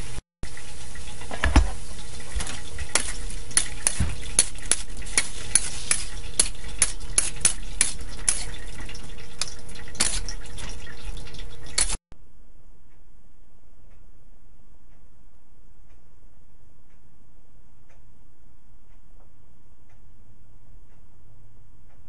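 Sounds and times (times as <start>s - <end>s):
food sizzling: 0.0s - 12.0s
spatula scraping a wok: 2.6s - 8.8s, 9.4s - 10.5s.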